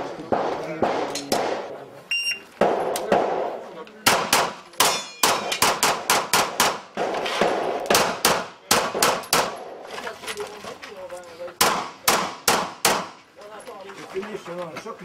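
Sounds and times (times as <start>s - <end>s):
rapid pistol fire: 0.3s - 1.7s, 2.6s - 9.8s, 11.6s - 13.2s.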